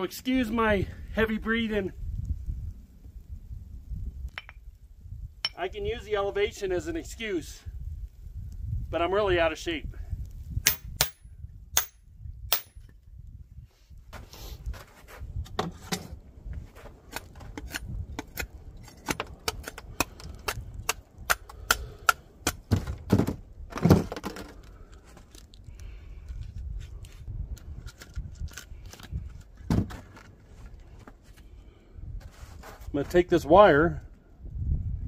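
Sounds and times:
wooden log pieces clicking and knocking: 17.2 - 26.5.

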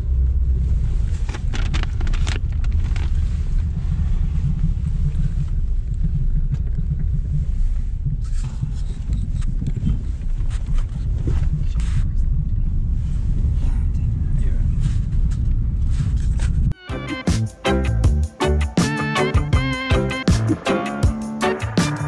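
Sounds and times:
car cabin engine and road rumble: 0.0 - 16.8.

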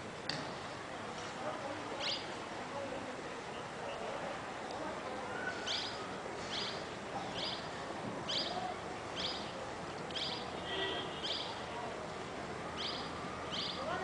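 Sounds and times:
outdoor background hiss: 0.0 - 14.0
bird chirping: 5.4 - 7.7, 8.3 - 8.6, 9.2 - 9.5, 10.1 - 10.6, 11.2 - 11.6, 12.8 - 13.9.

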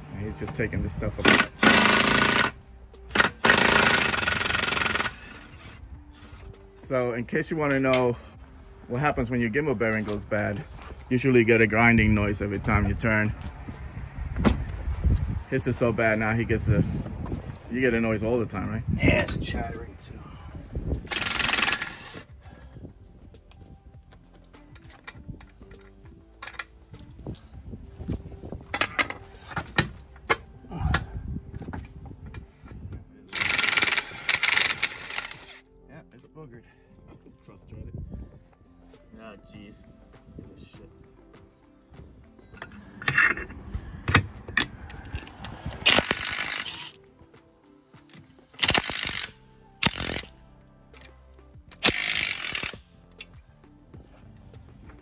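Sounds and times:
impact wrench running: 1.2 - 5.4, 21.1 - 22.2, 33.4 - 35.5, 45.8 - 47.0, 48.6 - 50.3, 51.8 - 52.9
cordless ratchet spinning nuts: 1.3 - 5.4, 21.0 - 22.2, 33.3 - 35.6, 45.8 - 47.0, 48.6 - 50.4, 51.8 - 53.3
metal tools clicking: 21.1 - 22.2, 33.3 - 35.6, 44.6 - 47.0, 48.1 - 50.4, 51.0 - 53.4.

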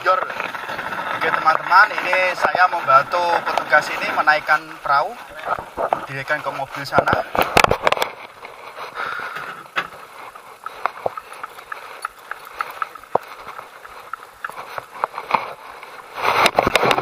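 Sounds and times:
boat clicking on brick path: 0.0 - 17.0.

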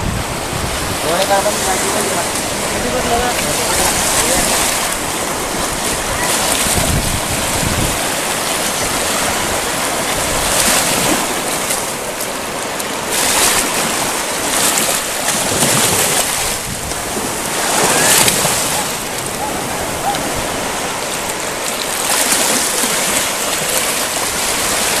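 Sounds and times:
wind buffeting microphone: 0.0 - 12.2, 13.0 - 25.0
shallow surf splashing: 0.0 - 25.0.

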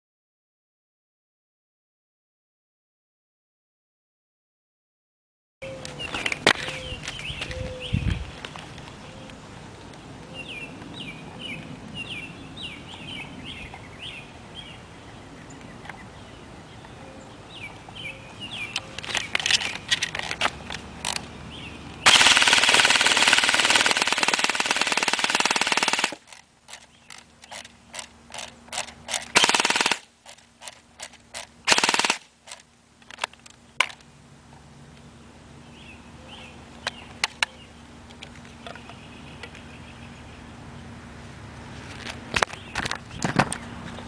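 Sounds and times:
airsoft gun firing: 22.0 - 26.2, 29.3 - 30.1, 31.6 - 32.3.

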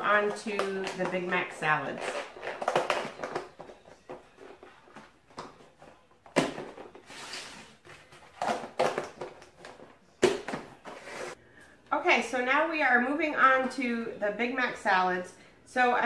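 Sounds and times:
plastic containers clacking: 0.0 - 7.1, 7.8 - 11.1.

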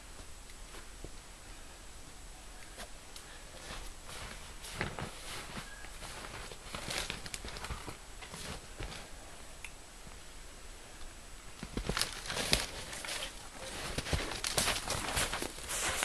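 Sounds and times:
dry twigs crackling: 2.7 - 9.1, 11.6 - 16.0
footsteps: 2.8 - 9.2, 11.6 - 16.0.

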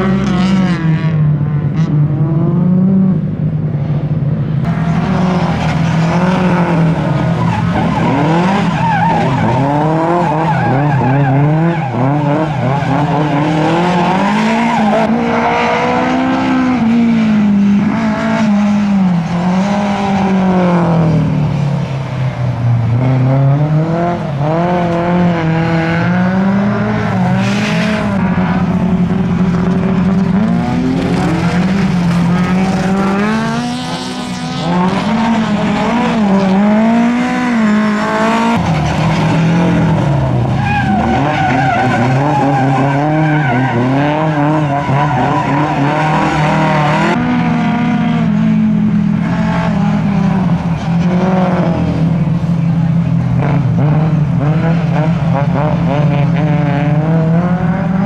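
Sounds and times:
car engine revving: 0.0 - 58.0
tyre squeal: 40.6 - 46.8.

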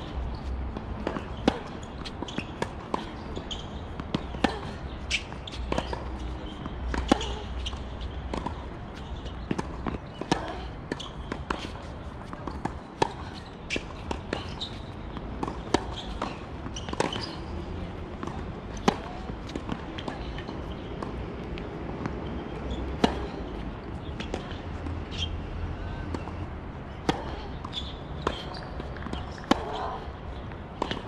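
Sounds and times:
tennis ball bouncing: 0.0 - 25.3, 26.0 - 31.0
racket hitting tennis ball: 0.7 - 17.5, 18.1 - 21.2, 27.0 - 30.0.

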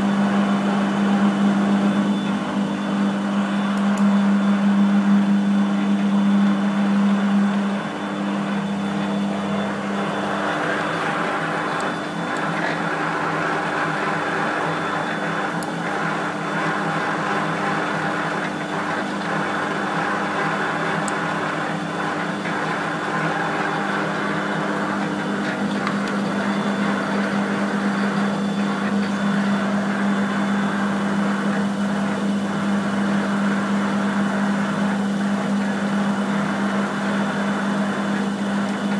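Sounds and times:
lathe machine hum: 0.0 - 38.9.

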